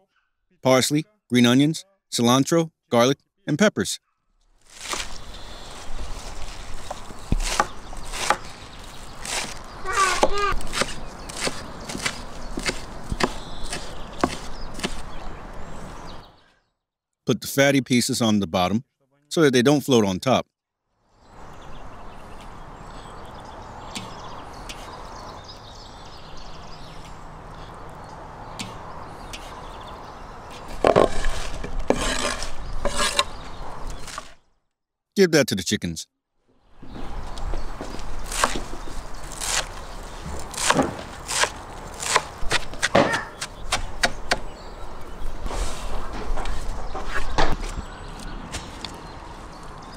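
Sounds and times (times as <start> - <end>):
small birds chirping: 4.0 - 16.8, 21.1 - 31.6, 32.2 - 34.6, 36.6 - 49.9
knife chopping on wooden board: 6.9 - 8.5, 9.2 - 15.1, 38.3 - 38.8, 39.4 - 44.5.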